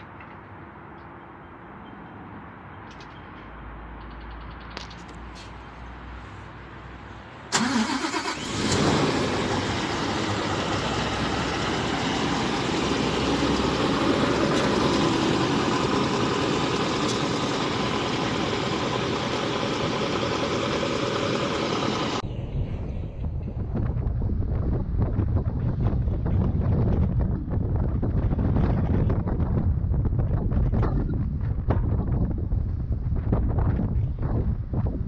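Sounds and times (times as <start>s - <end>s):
diesel truck engine starting and idling: 7.4s - 25.5s.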